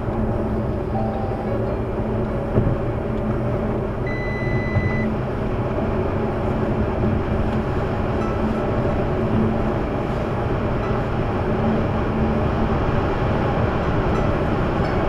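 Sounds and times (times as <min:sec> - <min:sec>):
low engine hum: 0:00.0 - 0:15.0
tyre and wind noise in car: 0:02.0 - 0:15.0
electronic beep: 0:04.1 - 0:05.1.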